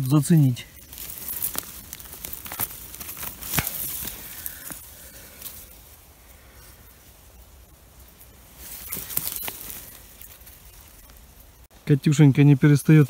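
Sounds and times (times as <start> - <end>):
dry grass and leaves rustling: 0.0 - 13.0
sharp snaps of stems: 0.9 - 5.6.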